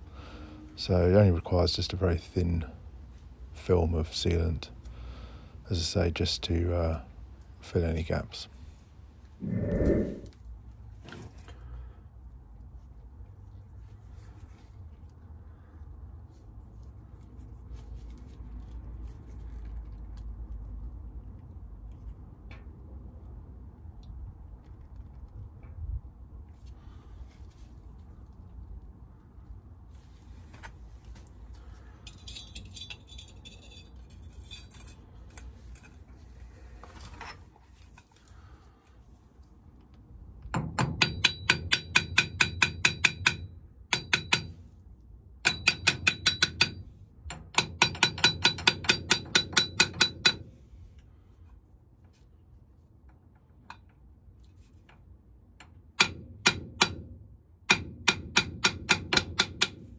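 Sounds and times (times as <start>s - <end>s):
hammer tapping metal cup: 40.6s - 44.6s, 45.5s - 50.4s, 57.7s - 59.8s.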